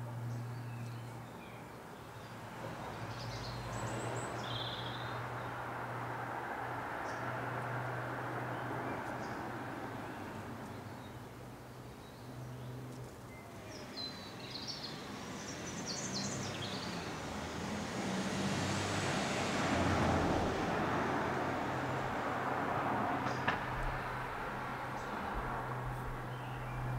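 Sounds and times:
distant traffic: 0:00.0 - 0:26.9
birds chirping: 0:23.2 - 0:26.9.

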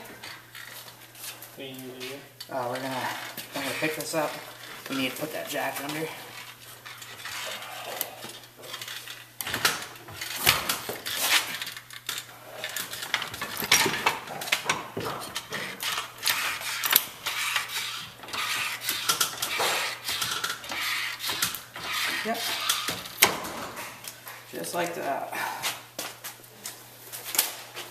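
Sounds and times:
metallic clattering of floor jack: 0:08.6 - 0:24.0.

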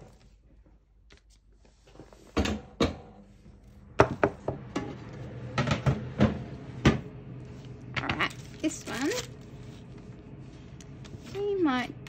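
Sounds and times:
objects knocking and clattering: 0:04.0 - 0:07.1.

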